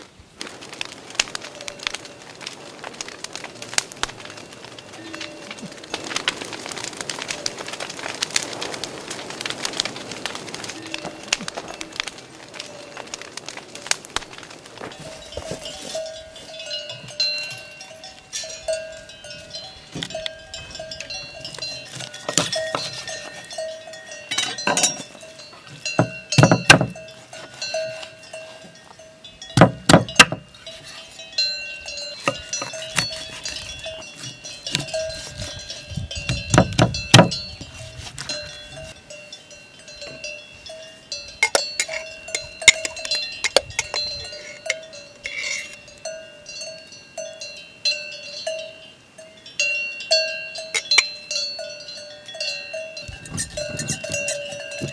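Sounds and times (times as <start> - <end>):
bell-like clank: 19.9 - 27.0.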